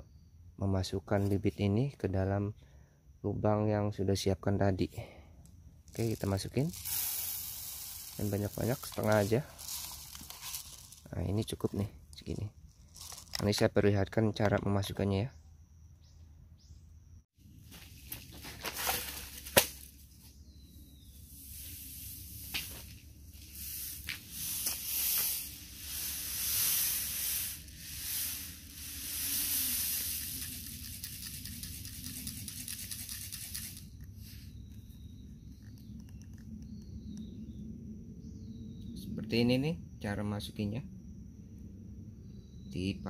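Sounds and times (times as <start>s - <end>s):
seeds rattling on plastic plate: 5.9s - 13.8s, 21.4s - 34.2s.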